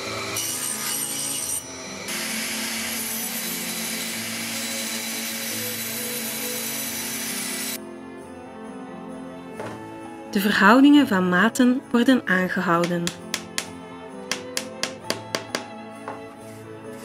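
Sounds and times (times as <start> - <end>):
bandsaw cutting wooden board: 0.0 - 7.8, 12.8 - 15.8.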